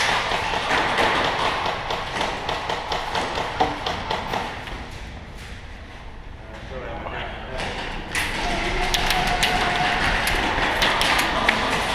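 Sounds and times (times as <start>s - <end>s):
sharp taps and knocks: 0.0s - 4.8s.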